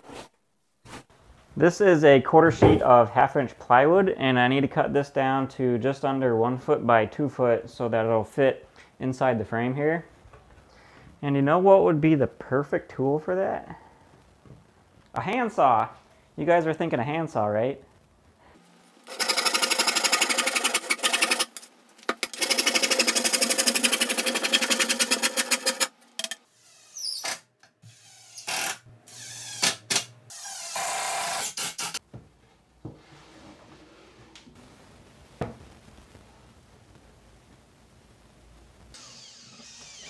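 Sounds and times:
jigsaw cutting plywood: 0:19.1 - 0:25.9.

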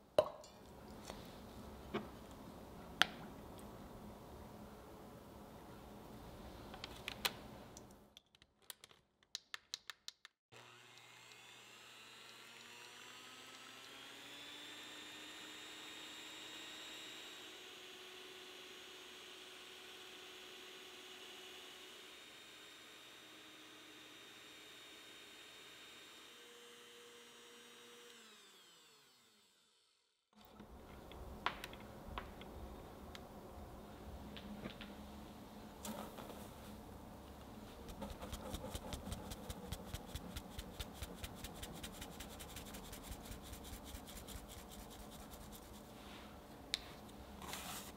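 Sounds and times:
electric hand mixer whipping: 0:10.6 - 0:29.6.

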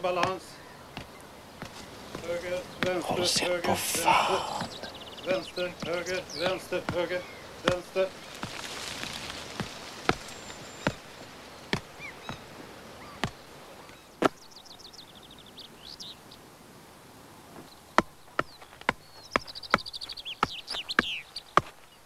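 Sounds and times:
songbird trilling: 0:04.6 - 0:08.5, 0:17.8 - 0:21.6.

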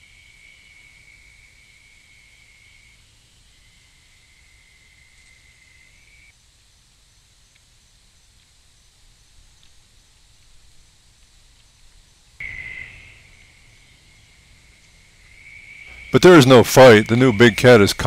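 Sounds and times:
faint ticks: 0:06.9 - 0:12.5.

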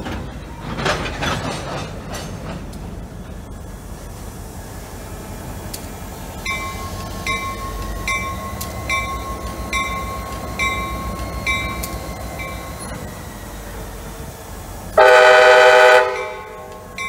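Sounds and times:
freight train rumbling: 0:00.0 - 0:17.0
locomotive bell ringing: 0:06.4 - 0:14.2, 0:15.0 - 0:17.0.

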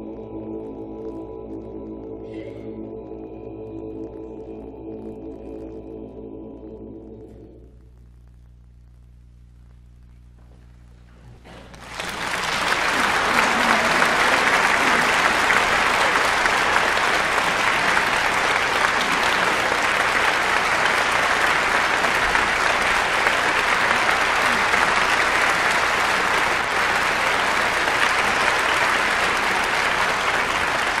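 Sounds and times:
audience applauding: 0:11.6 - 0:31.0.

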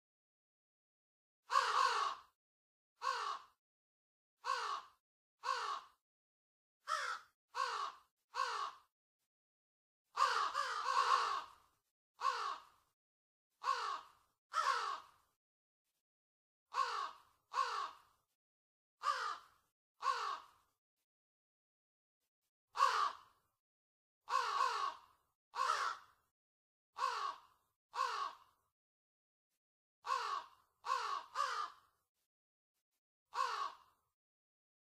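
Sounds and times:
crows cawing: 0:01.5 - 0:02.4, 0:03.0 - 0:03.6, 0:04.4 - 0:06.0, 0:06.9 - 0:08.9, 0:10.2 - 0:12.8, 0:13.6 - 0:15.2, 0:16.7 - 0:18.2, 0:19.0 - 0:20.7, 0:22.8 - 0:23.4, 0:24.3 - 0:26.3, 0:27.0 - 0:28.6, 0:30.0 - 0:32.0, 0:33.3 - 0:34.0.

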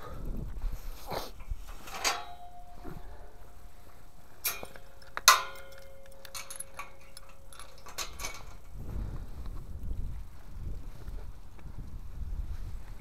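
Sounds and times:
chain rattling on metal gate: 0:01.4 - 0:03.2, 0:04.4 - 0:08.8
metal clank: 0:01.7 - 0:03.2, 0:04.4 - 0:08.8.

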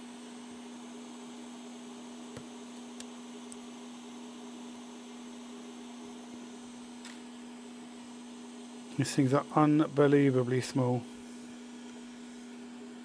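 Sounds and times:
electrical hum: 0:00.0 - 0:13.0.

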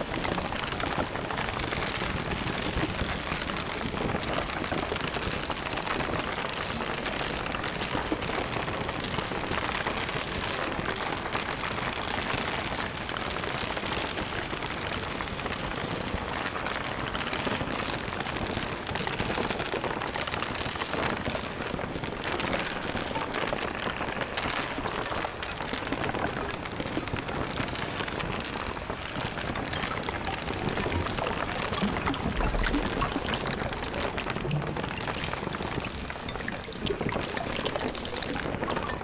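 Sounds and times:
steady broadband rushing noise: 0:16.2 - 0:39.0.

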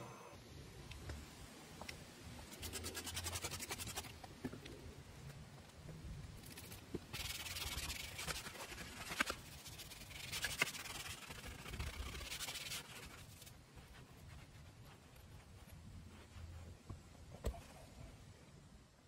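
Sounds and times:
brush scrubbing vinyl: 0:02.4 - 0:04.2, 0:06.4 - 0:18.1.

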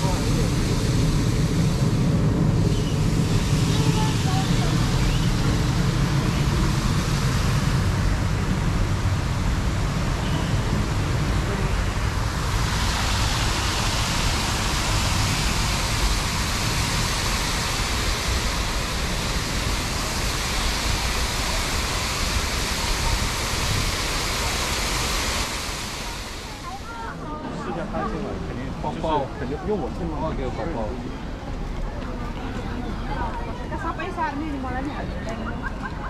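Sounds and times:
low rumble: 0:00.0 - 0:27.2
water rushing over rock cascade: 0:00.0 - 0:27.4.

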